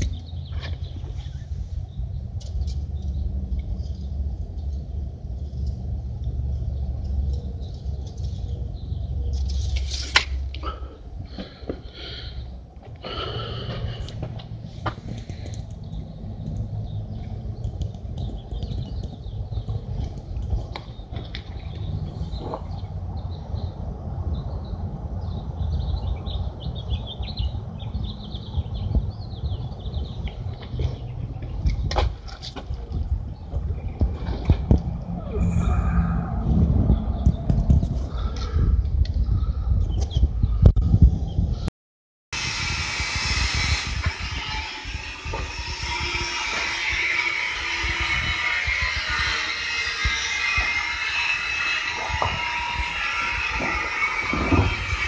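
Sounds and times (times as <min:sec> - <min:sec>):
small birds chirping: 0:10.6 - 0:31.9, 0:36.8 - 0:40.7
low rumble: 0:32.9 - 0:41.7.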